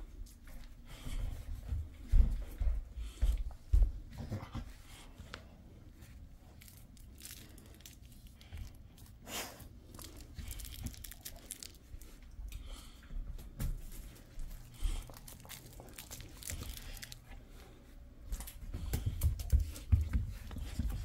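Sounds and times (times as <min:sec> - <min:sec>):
plush toy rustling and crinkling: 0:05.9 - 0:12.2, 0:13.8 - 0:17.7.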